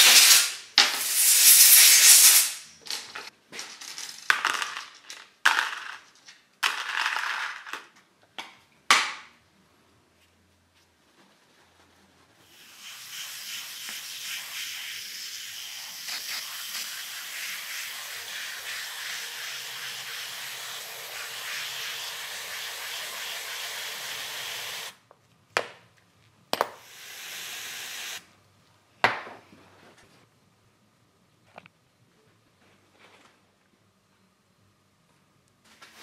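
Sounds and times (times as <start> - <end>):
aerosol can spraying: 0.0 - 2.6, 12.5 - 25.0, 26.6 - 28.2.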